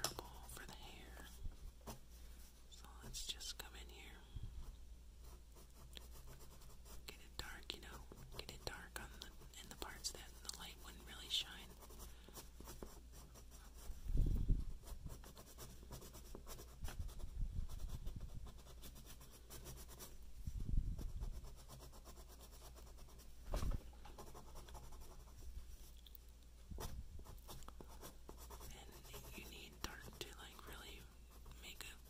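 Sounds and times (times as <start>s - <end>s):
pen scratching on paper: 5.2s - 14.0s, 14.8s - 20.1s, 21.0s - 23.2s, 24.2s - 25.4s, 26.8s - 32.0s.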